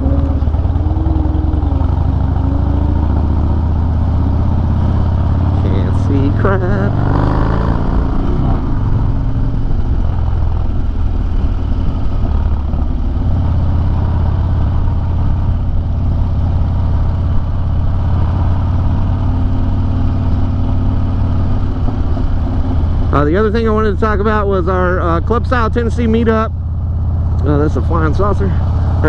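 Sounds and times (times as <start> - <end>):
motorcycle engine running: 0.0 - 29.0.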